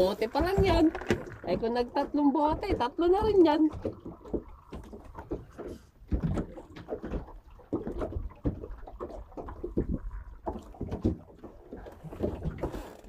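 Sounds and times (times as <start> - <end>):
water slapping against boat hull: 0.0 - 13.0.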